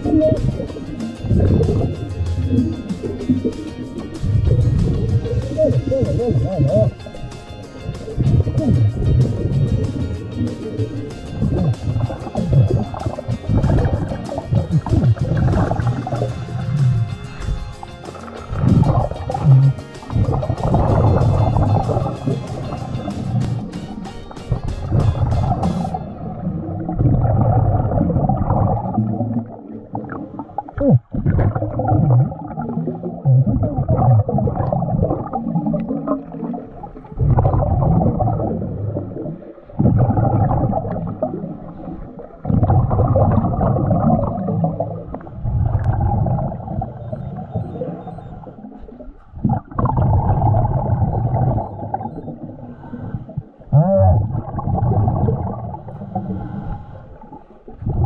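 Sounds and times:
exhaled bubbles rumbling: 0:00.0 - 0:58.0
diver breathing through regulator: 0:52.4 - 0:53.7, 0:55.1 - 0:58.0.

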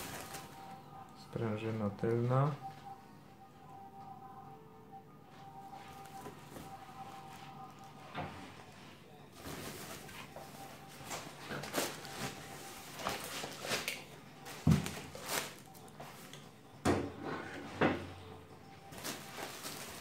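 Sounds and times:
plastic packaging rustling: 0:00.0 - 0:00.8, 0:05.8 - 0:16.4, 0:18.8 - 0:20.0.

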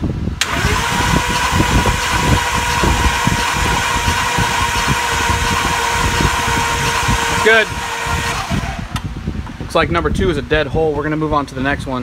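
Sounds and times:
engine cranking chugging: 0:00.4 - 0:09.0
starter whine: 0:00.4 - 0:09.2.

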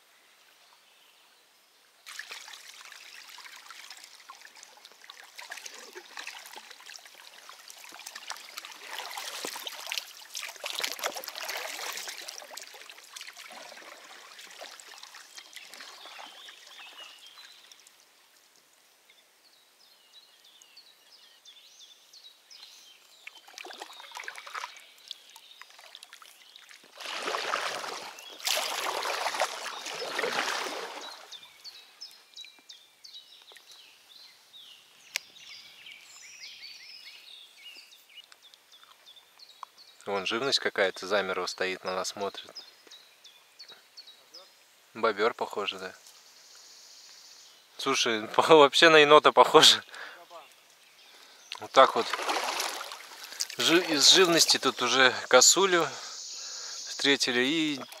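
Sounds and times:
water splashing around a kayak: 0:02.0 - 0:18.0, 0:23.1 - 0:31.8, 0:51.5 - 0:56.1, 0:57.0 - 0:58.0.

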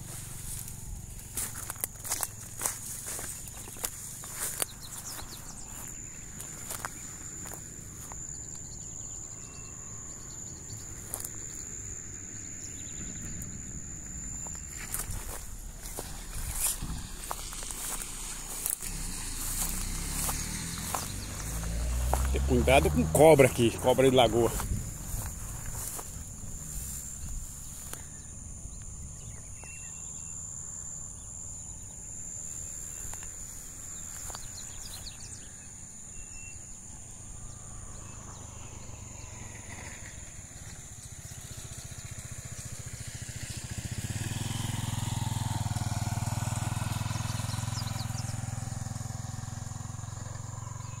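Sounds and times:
high-pitched insect drone: 0:00.0 - 0:51.0
vehicle engine hum: 0:00.0 - 0:51.0
bird chirps: 0:01.5 - 0:07.2, 0:08.2 - 0:11.7, 0:14.4 - 0:26.0, 0:26.8 - 0:39.4.

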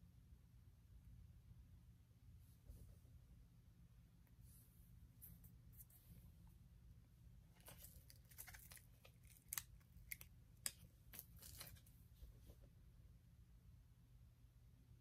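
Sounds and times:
plastic nails clicking and crinkling: 0:07.6 - 0:11.9.

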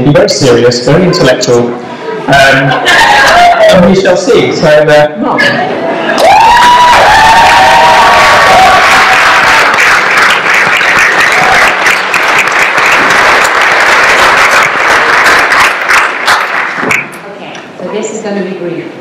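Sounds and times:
crowd applauding: 0:06.2 - 0:17.2.

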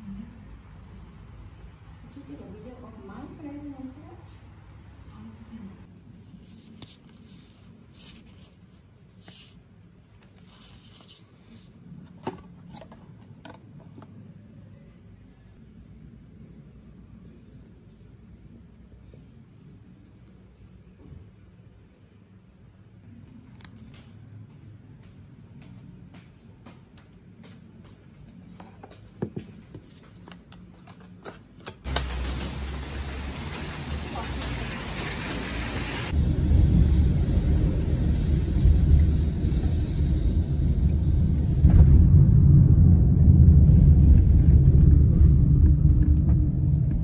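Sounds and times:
paper and cardboard rustling: 0:05.9 - 0:13.5
low steady hum: 0:35.9 - 0:47.0.

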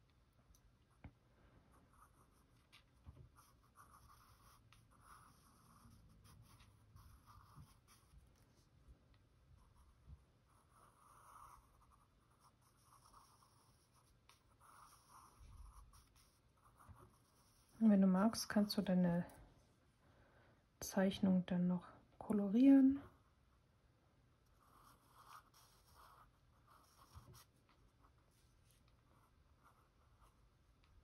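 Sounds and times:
pencil scratching on paper: 0:01.7 - 0:08.7, 0:09.6 - 0:18.6, 0:24.5 - 0:30.6.

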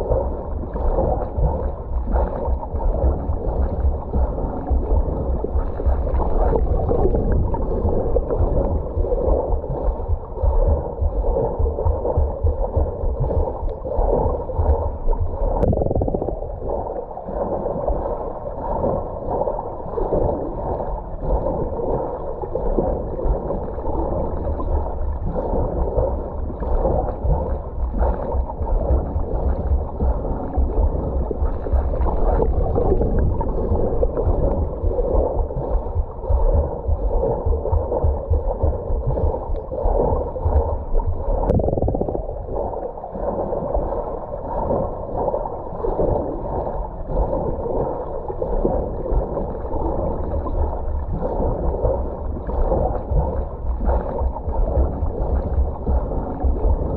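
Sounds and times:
underwater bubbling and splashing: 0:00.0 - 0:56.9.

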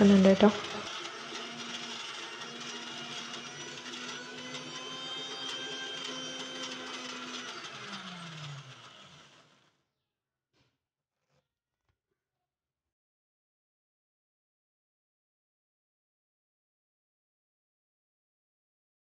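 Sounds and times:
mixer grinder motor running: 0:00.0 - 0:09.8.

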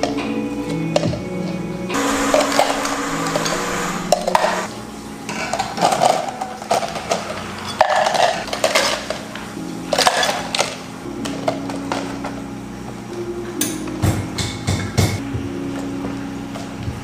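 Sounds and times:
ice cubes rattling into plastic cups: 0:05.4 - 0:09.3.

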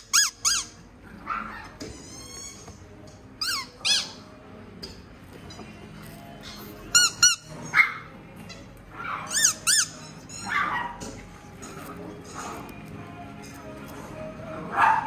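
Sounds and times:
small dogs yipping: 0:00.0 - 0:02.7, 0:07.0 - 0:08.1, 0:08.9 - 0:11.2
background music: 0:00.0 - 0:15.0.

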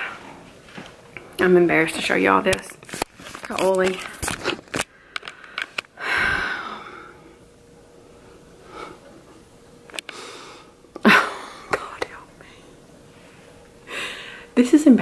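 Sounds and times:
person breathing out heavily: 0:04.9 - 0:07.4, 0:13.9 - 0:14.5.

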